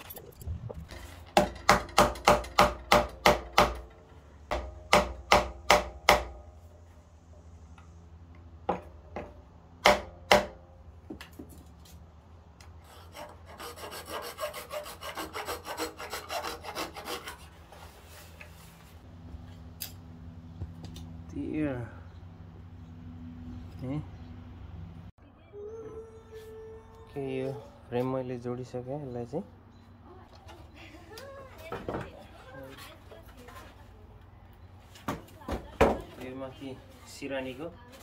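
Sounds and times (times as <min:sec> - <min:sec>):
rapid rasping strokes: 0:12.8 - 0:18.2.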